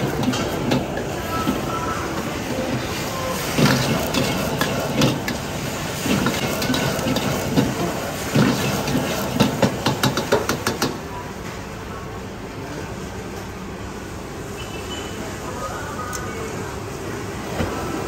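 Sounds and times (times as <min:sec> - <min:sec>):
food sizzling: 0:00.0 - 0:10.7.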